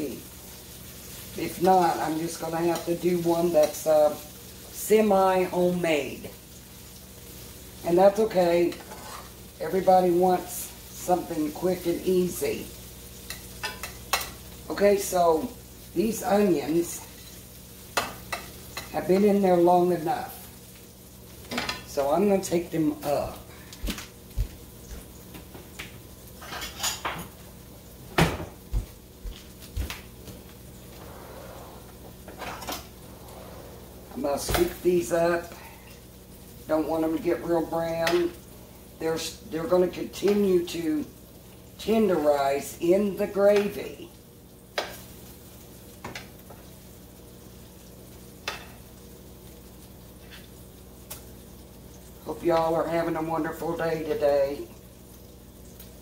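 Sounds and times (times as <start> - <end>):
onions sizzling in oil: 0.0 - 56.0
dishes and utensils clinking: 26.4 - 27.3, 32.2 - 32.9.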